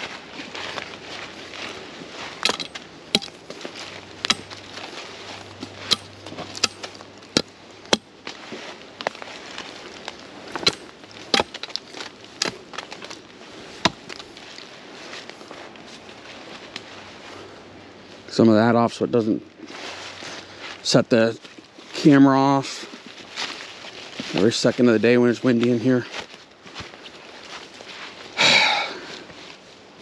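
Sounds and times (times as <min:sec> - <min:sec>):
dry leaves rustling: 0:00.0 - 0:30.0
twigs snapping: 0:02.4 - 0:08.4, 0:09.0 - 0:14.7.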